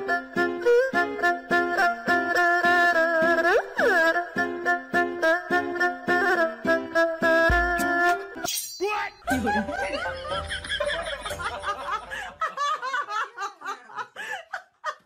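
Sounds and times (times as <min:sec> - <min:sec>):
music: 0:00.0 - 0:12.4
people laughing: 0:09.3 - 0:15.0.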